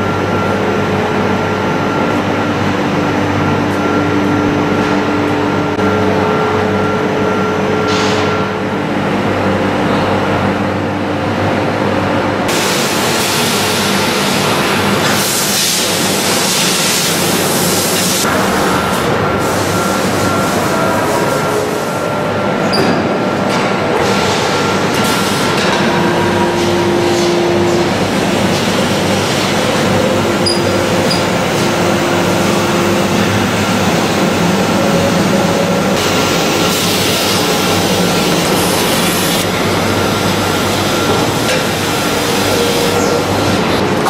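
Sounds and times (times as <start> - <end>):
press line mechanical din: 12.4 - 44.0.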